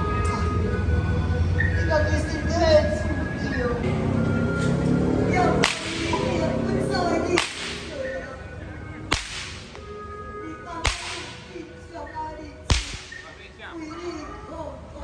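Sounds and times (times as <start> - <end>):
whip cracking: 5.6 - 6.3, 7.3 - 8.0, 9.1 - 9.8, 10.8 - 11.5, 12.7 - 13.3.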